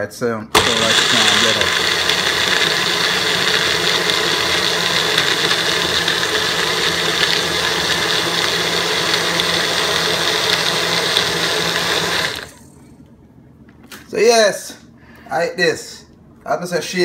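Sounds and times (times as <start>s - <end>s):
blender motor whirring: 0.5s - 12.7s.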